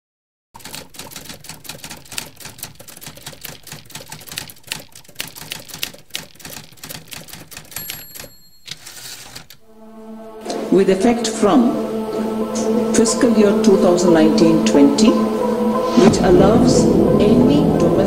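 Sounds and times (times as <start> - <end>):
typewriter keys clattering: 0.6 - 9.6
typewriter bell ringing: 6.4 - 9.5.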